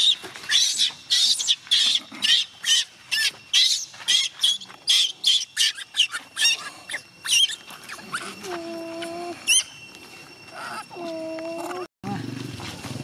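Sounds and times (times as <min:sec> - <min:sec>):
baby monkey shrill squealing cries: 0:00.0 - 0:09.8.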